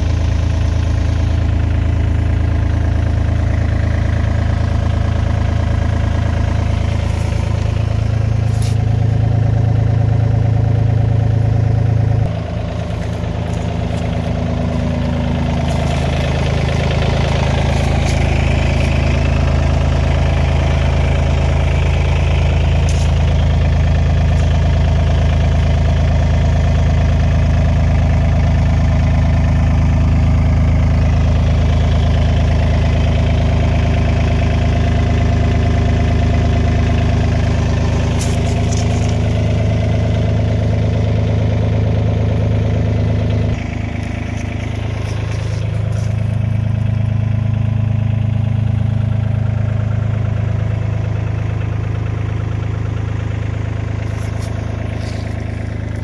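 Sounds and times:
diesel excavator engine idling: 0.0 - 56.0.

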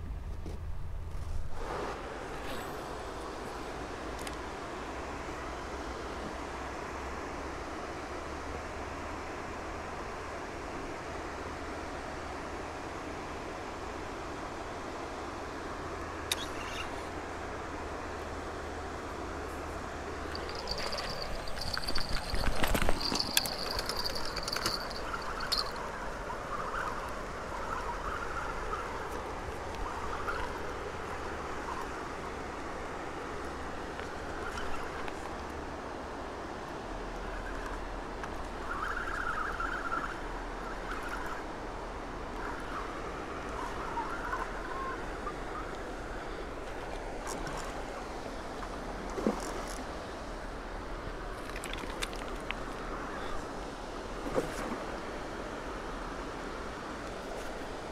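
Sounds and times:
fishing rods clicking and knocking: 20.3 - 25.9.

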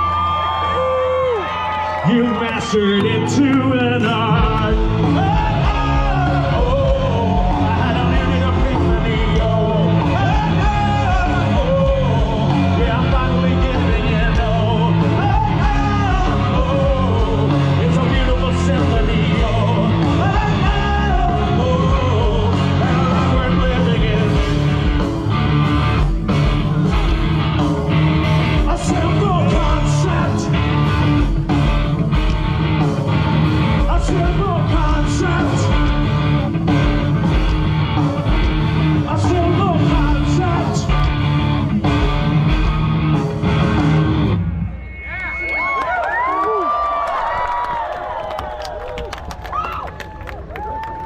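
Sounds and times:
live rock band: 0.0 - 45.9
person singing: 2.0 - 25.1, 33.6 - 37.3, 38.9 - 41.1.

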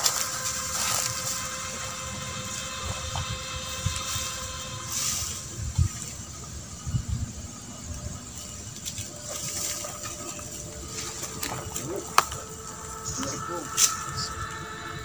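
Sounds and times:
dry grass rustling: 0.0 - 15.0.

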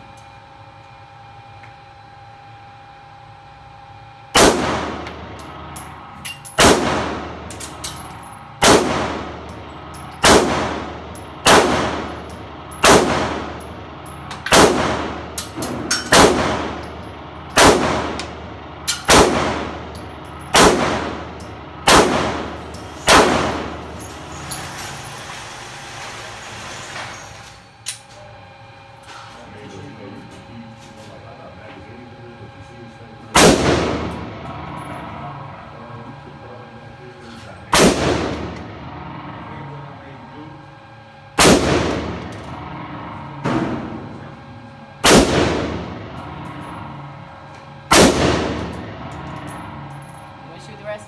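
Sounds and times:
handgun shots indoors: 4.3 - 5.5, 6.3 - 9.6, 10.2 - 13.7, 14.3 - 24.0, 33.4 - 34.3, 37.7 - 38.6, 41.4 - 42.5, 45.0 - 46.8, 47.9 - 49.7.

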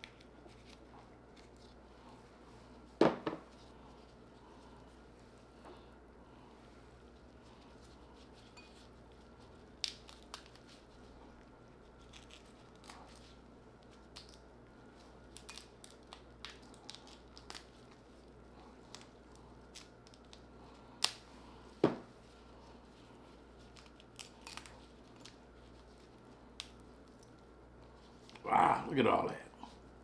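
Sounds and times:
crab shell cracking and snapping: 9.8 - 10.6, 12.0 - 13.2, 13.9 - 14.5, 15.3 - 18.0, 18.8 - 21.3, 23.7 - 25.4.

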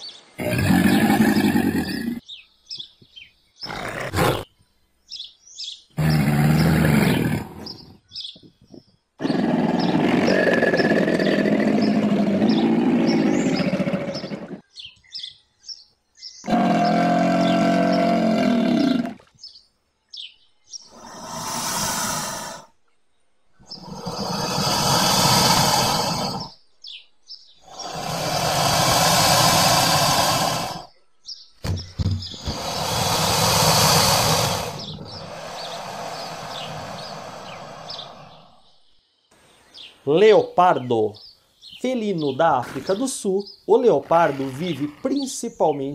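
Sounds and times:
bird chirps: 0.0 - 18.2, 19.4 - 45.9
crocodile growling: 0.4 - 2.2, 6.0 - 7.9, 9.2 - 14.6, 16.5 - 19.2, 20.9 - 22.7, 23.7 - 26.6, 27.6 - 30.9, 32.4 - 38.6
breathy hiss: 20.9 - 22.8, 23.7 - 26.6, 27.6 - 30.9, 32.4 - 38.7.

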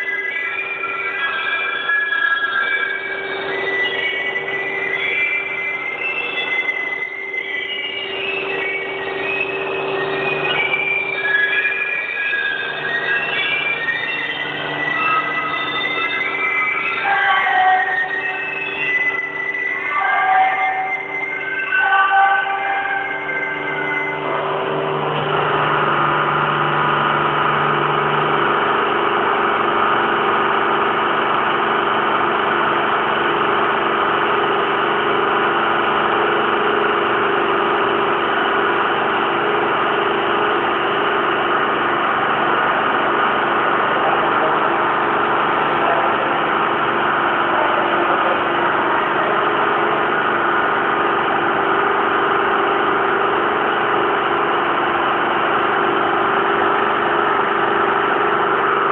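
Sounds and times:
winding engine running: 24.2 - 58.9.

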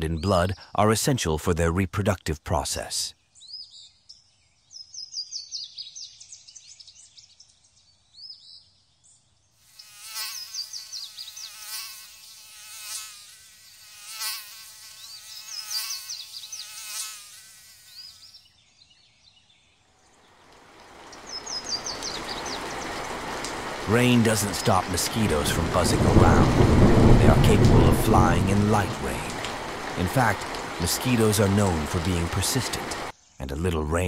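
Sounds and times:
birds chirping: 2.8 - 12.1, 14.7 - 34.0
mosquito whine: 9.7 - 18.5
rain pattering: 20.4 - 33.1.

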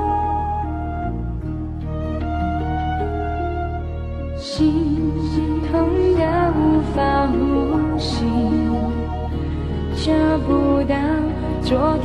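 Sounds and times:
pop ballad instrumental: 0.0 - 12.0.

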